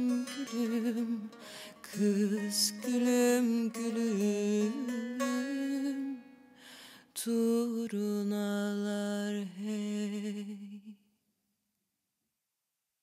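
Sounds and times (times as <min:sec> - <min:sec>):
quick breath: 0:06.6 - 0:07.1
woman singing long held notes: 0:07.2 - 0:11.0.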